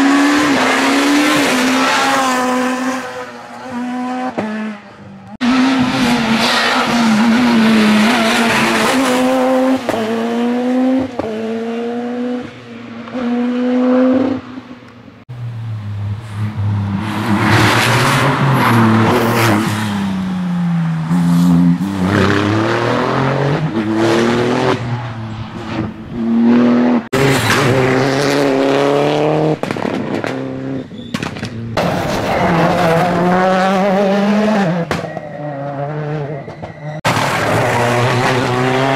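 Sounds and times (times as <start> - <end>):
rally car engines shifting gears: 0.0 - 15.0, 15.8 - 38.9.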